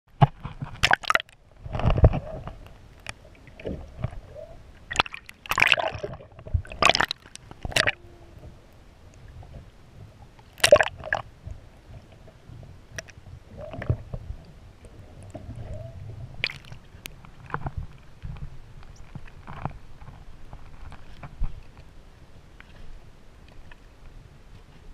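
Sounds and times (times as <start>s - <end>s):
low watery rumble: 0.1s - 24.9s
seawater splashing against camera: 0.2s - 4.2s, 4.9s - 8.1s, 10.6s - 11.3s, 15.2s - 21.6s.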